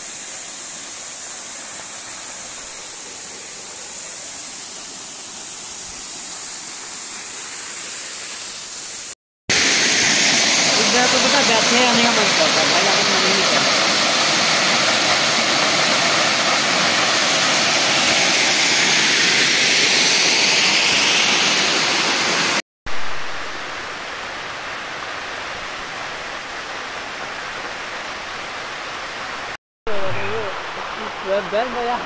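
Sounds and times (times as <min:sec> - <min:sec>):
waterfall roaring: 0:09.5 - 0:32.0.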